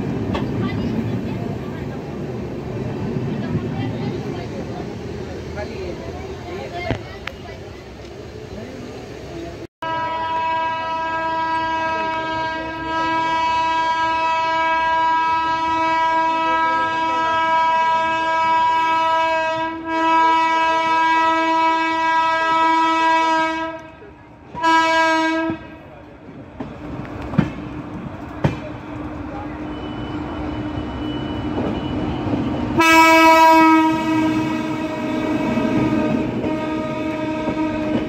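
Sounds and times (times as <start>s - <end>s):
train running noise: 0.0s - 38.0s
locomotive horn blast: 9.8s - 25.8s, 32.7s - 38.0s.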